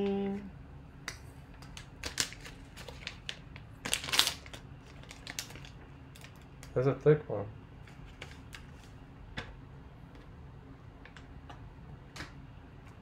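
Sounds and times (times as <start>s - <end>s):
foil pouch crinkling and tearing: 1.6s - 6.4s.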